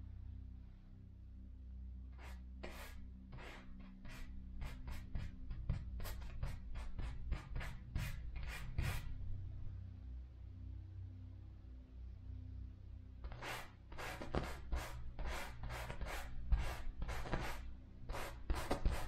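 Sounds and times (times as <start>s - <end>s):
paintbrush scratching on canvas: 2.2s - 9.1s, 13.3s - 19.0s.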